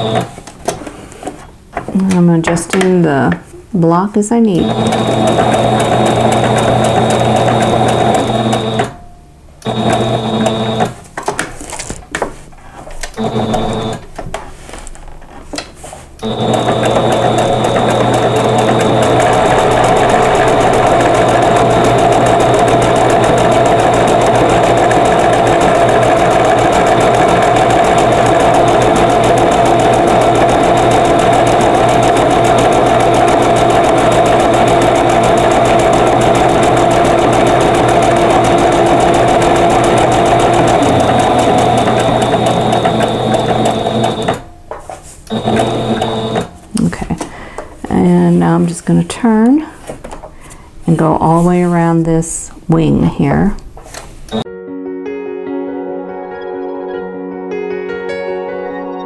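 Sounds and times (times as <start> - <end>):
electric sewing machine stitching: 0.0 - 0.4, 4.5 - 9.0, 9.6 - 11.0, 13.0 - 14.1, 16.2 - 44.5, 45.3 - 46.6.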